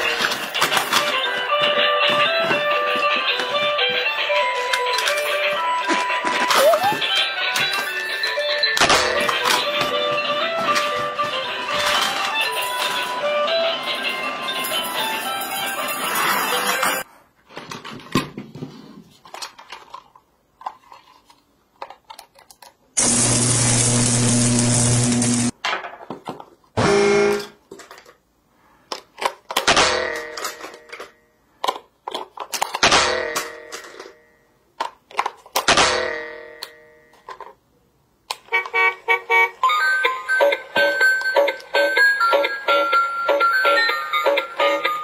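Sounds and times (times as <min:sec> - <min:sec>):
batteries clattering into plastic toy: 0:00.0 - 0:01.3, 0:04.7 - 0:05.6
electric screwdriver motor humming: 0:23.0 - 0:25.5
toy electronic tune: 0:38.6 - 0:45.0.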